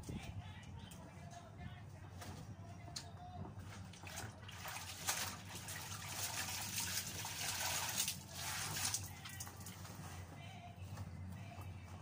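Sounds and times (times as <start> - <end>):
water splashing into a basin: 3.9 - 9.4.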